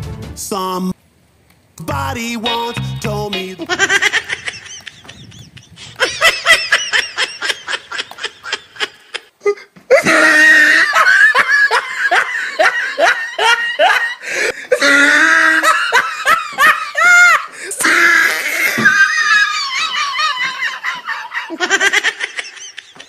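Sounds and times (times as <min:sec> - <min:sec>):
man laughing loudly: 0:03.6 - 0:23.0.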